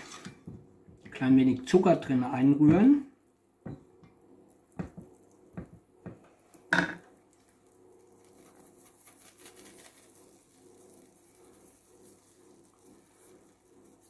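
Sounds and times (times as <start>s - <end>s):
sugar hissing in hot butter: 8.0s - 14.0s.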